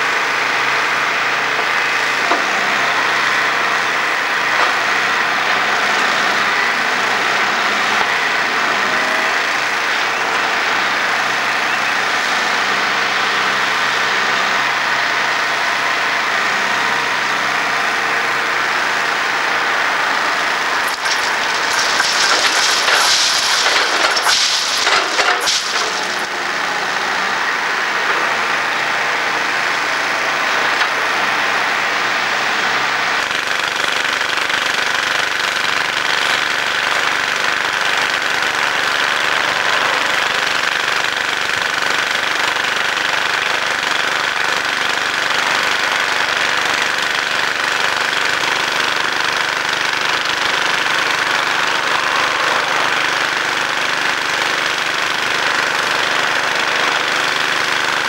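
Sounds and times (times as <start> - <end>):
diesel engine running: 0.0 - 58.0
mechanical clatter and hiss: 20.8 - 26.4.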